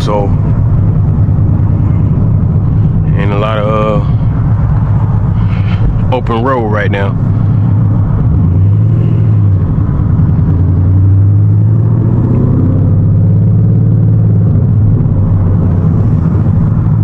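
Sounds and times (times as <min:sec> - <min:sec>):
car engine droning from inside cabin: 0:00.0 - 0:17.0.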